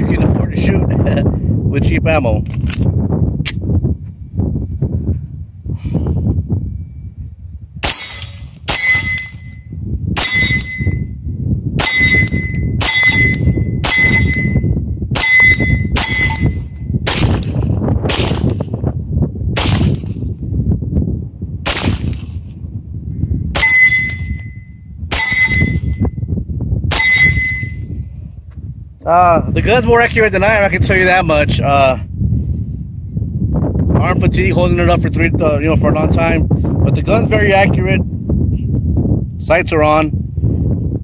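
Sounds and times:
wind rumble on microphone: 0.0s - 41.0s
metallic ringing tone: 6.6s - 11.3s, 11.9s - 16.9s, 23.6s - 26.3s, 26.9s - 28.0s
pistol shots: 17.1s - 18.6s, 19.6s - 20.1s, 21.6s - 22.4s.

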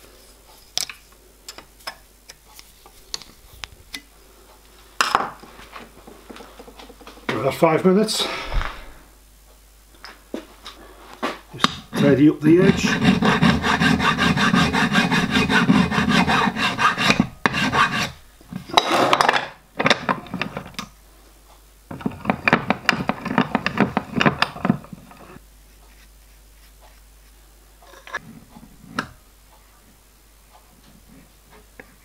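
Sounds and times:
hand file scraping sheet metal: 11.9s - 18.2s.

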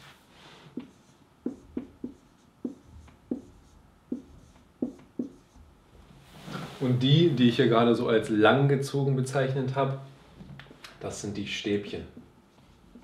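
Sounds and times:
marker writing on a whiteboard: 0.7s - 5.7s.

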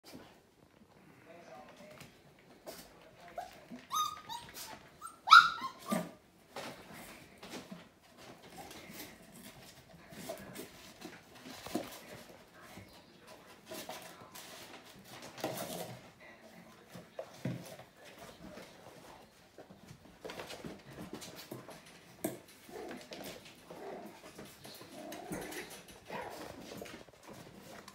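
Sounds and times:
puppies yipping: 3.8s - 6.2s.

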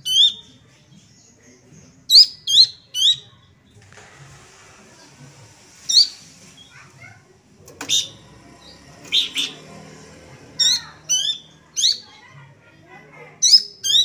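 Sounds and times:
bird high chirps: 0.0s - 3.6s, 7.8s - 9.7s, 10.6s - 12.3s, 13.4s - 14.0s.

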